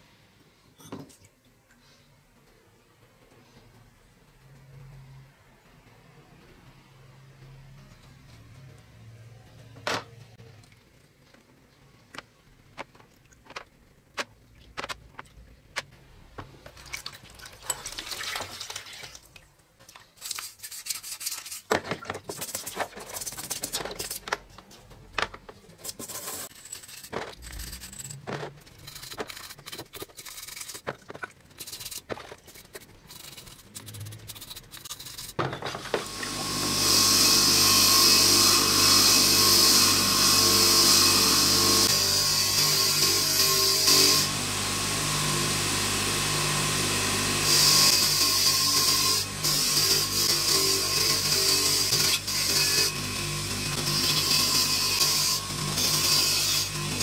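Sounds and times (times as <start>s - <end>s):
brush scrubbing: 20.2s - 24.2s, 25.8s - 35.4s
bench grinder whining: 35.9s - 57.0s.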